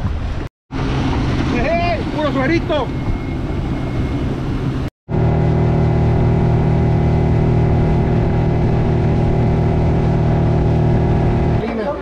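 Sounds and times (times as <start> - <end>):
boat motor running: 0.1 - 11.7.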